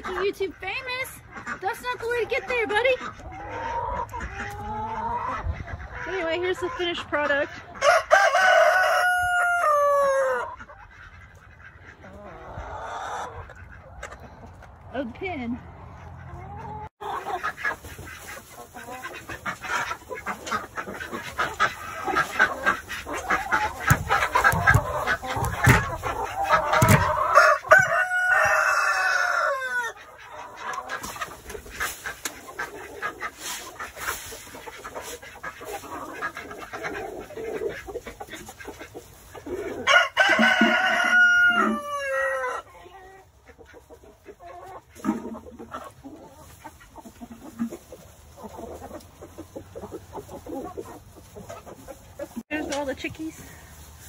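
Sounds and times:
hens clucking: 0.0s - 54.0s
rooster crowing: 7.8s - 10.5s, 27.0s - 30.0s, 39.8s - 42.6s.

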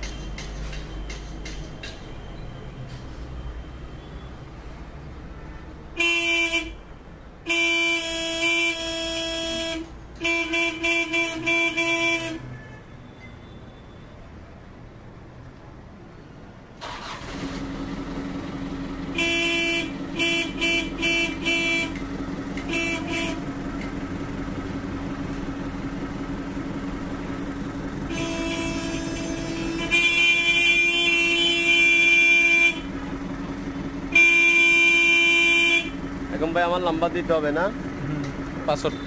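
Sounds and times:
vehicle horn honking: 5.4s - 14.0s, 19.1s - 23.7s, 28.0s - 33.0s, 34.1s - 36.0s, 38.8s - 39.0s.

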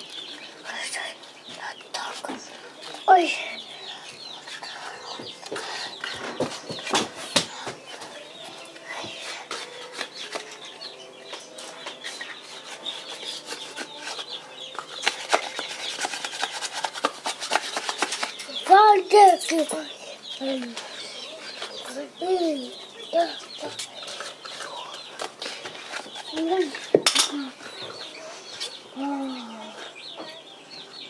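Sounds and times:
small claws scratching on cloth and wood: 8.6s - 18.8s.

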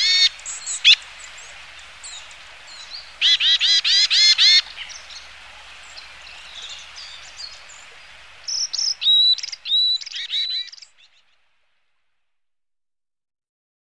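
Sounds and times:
faint steady hiss: 0.0s - 12.4s.

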